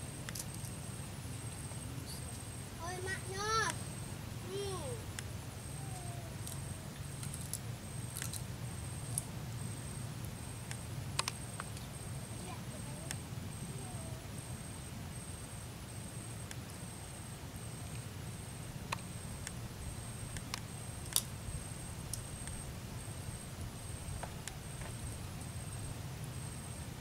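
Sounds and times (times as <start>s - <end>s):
shells cracking and peeling: 7.2s - 8.4s.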